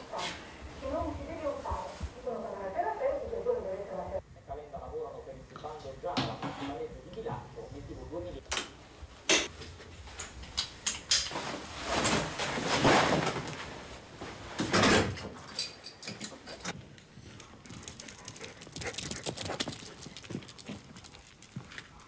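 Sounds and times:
clothes and bags rustling: 0:00.0 - 0:03.9, 0:08.9 - 0:17.8.

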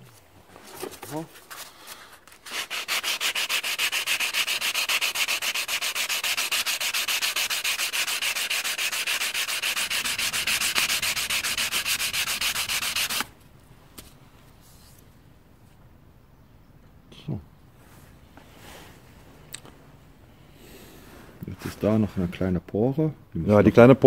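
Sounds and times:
sandpaper sanding metal strip: 0:02.4 - 0:13.3.

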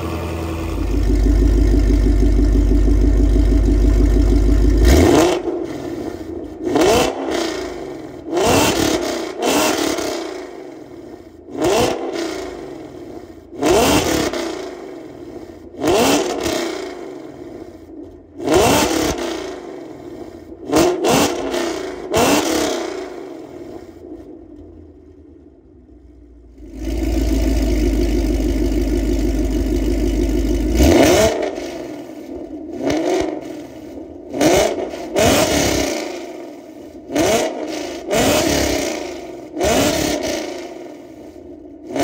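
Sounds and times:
car engine revving in blips: 0:00.0 - 0:10.5, 0:13.5 - 0:14.9, 0:20.6 - 0:23.8, 0:26.6 - 0:42.0.

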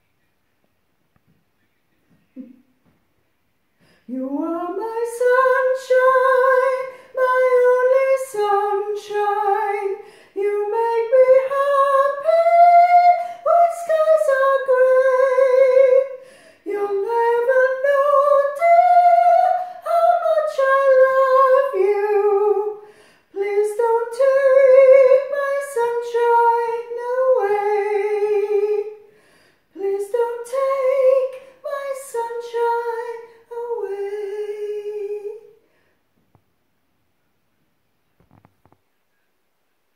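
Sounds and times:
woman singing soprano: 0:04.1 - 0:29.0, 0:29.8 - 0:35.6.

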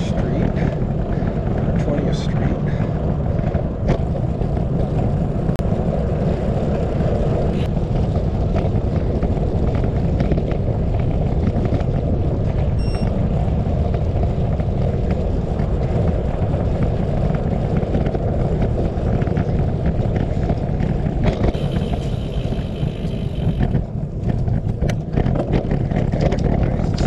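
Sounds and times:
bicycle tyre rumble on trail: 0:00.0 - 0:27.0
wind buffeting microphone: 0:00.0 - 0:27.0.

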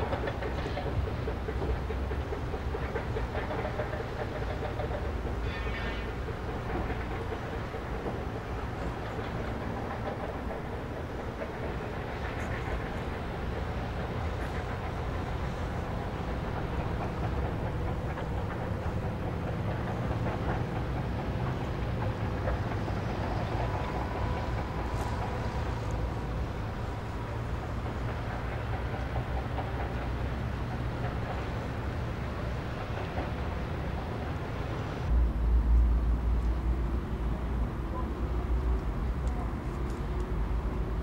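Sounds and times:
low rumble and hiss: 0:34.7 - 0:41.0
loud low rumble: 0:35.1 - 0:37.8.

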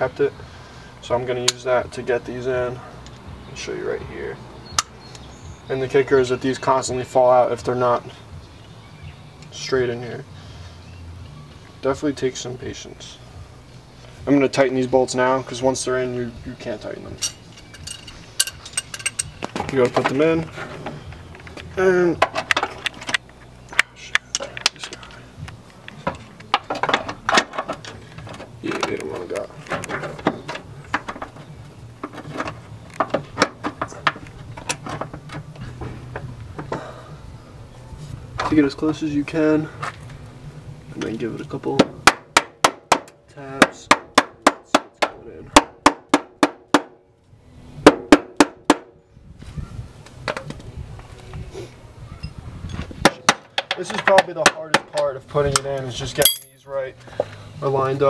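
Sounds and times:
metal parts clattering: 0:17.2 - 0:19.6, 0:56.2 - 0:56.6.

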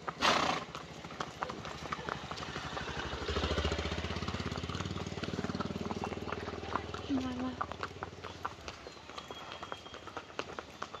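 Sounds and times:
horse hooves clip-clopping: 0:00.0 - 0:11.0.

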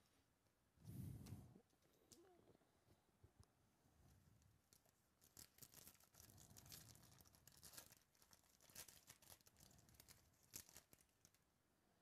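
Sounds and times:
foil wrapper tearing and crinkling: 0:04.8 - 0:11.4.

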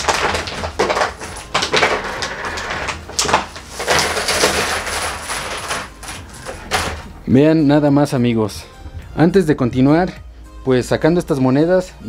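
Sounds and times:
plastic crackling: 0:00.0 - 0:07.2
coins clinking onto table: 0:03.8 - 0:07.0.

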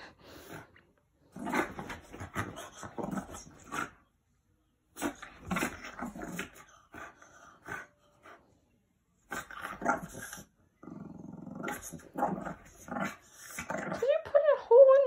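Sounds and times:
dog snorting and grunting: 0:01.4 - 0:04.0, 0:05.0 - 0:07.9, 0:09.3 - 0:14.2.

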